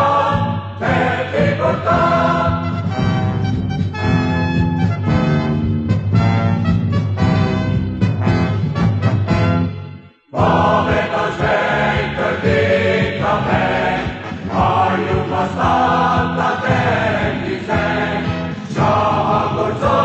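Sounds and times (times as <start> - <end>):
choir singing: 0.0 - 3.0, 10.2 - 20.0
music: 0.0 - 20.0.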